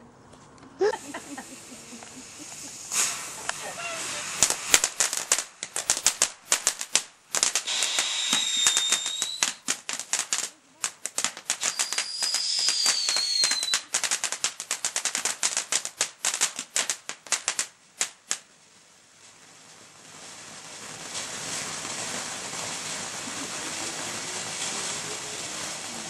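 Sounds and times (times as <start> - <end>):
firework fountain crackling: 0.0 - 26.0
hiss of spraying sparks: 0.8 - 18.5, 19.1 - 26.0
short falling whistle: 7.7 - 9.6.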